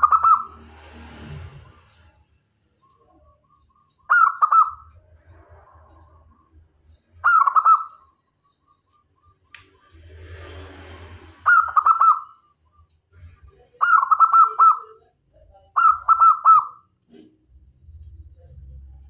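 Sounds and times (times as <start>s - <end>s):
dove cooing: 0.0s - 0.6s, 7.2s - 7.9s.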